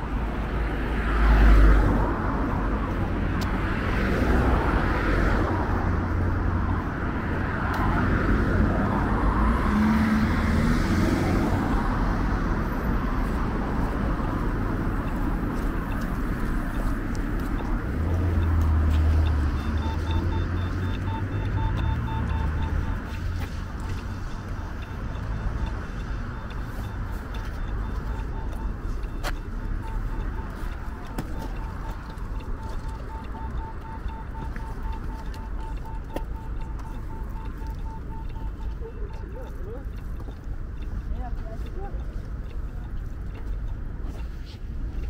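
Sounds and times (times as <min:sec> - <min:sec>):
street traffic: 0:00.0 - 0:45.0
vehicle engine rumble: 0:00.0 - 0:45.0
rapid electronic beeping: 0:17.5 - 0:40.9.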